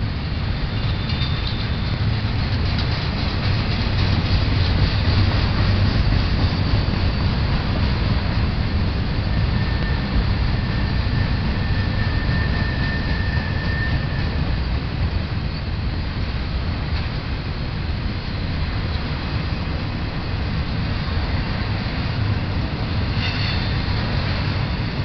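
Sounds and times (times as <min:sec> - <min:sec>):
rail cars rumbling past: 0:00.0 - 0:25.0.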